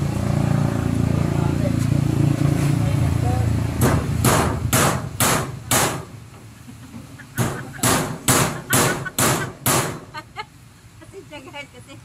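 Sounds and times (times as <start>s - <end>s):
loud knocking blows: 3.8s - 6.2s, 7.4s - 10.1s.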